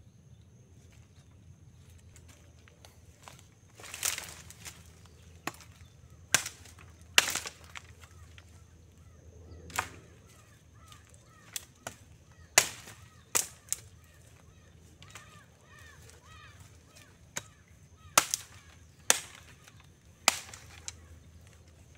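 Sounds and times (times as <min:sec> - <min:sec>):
machete chopping branches: 0:03.8 - 0:08.5, 0:09.7 - 0:10.1, 0:10.9 - 0:13.9, 0:17.0 - 0:21.1.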